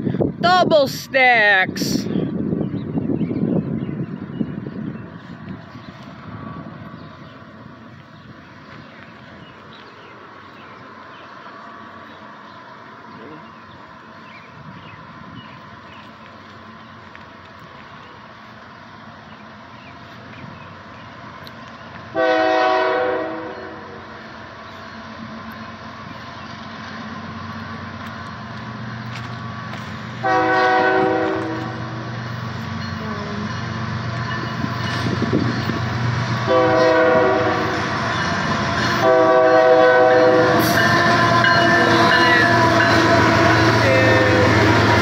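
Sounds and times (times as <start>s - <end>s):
diesel locomotive rumble: 0.0s - 45.0s
train horn blasts: 22.1s - 24.0s, 30.2s - 32.1s, 36.4s - 37.9s, 38.9s - 45.0s.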